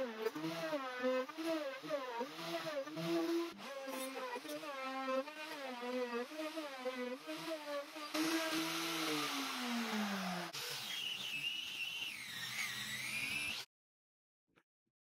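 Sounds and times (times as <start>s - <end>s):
milling spindle motor: 0.0s - 13.6s
rotary sanding pad whine: 0.0s - 13.6s
harsh cutting hiss: 8.1s - 11.2s.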